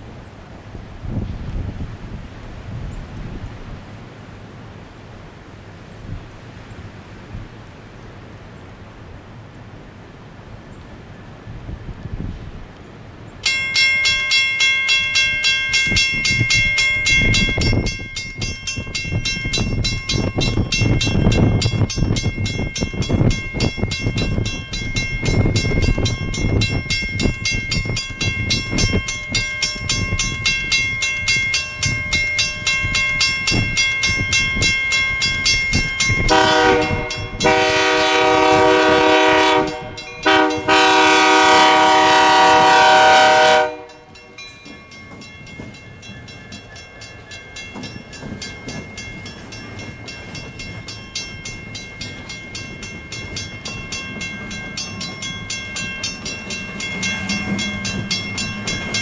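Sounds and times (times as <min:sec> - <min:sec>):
locomotive air horn blast: 0:36.3 - 0:44.1
lower-pitched horn chord: 0:36.3 - 0:44.1
engine and wheels rumble: 0:43.7 - 0:59.0.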